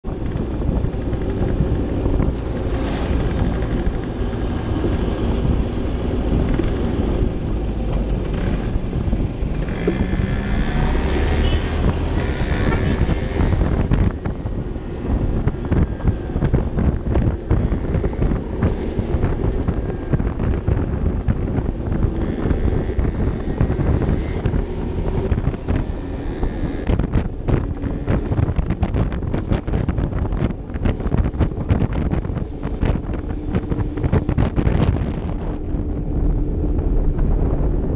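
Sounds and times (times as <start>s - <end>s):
wind rumble on microphone: 0.0s - 37.9s
scooter engine running: 0.1s - 37.8s.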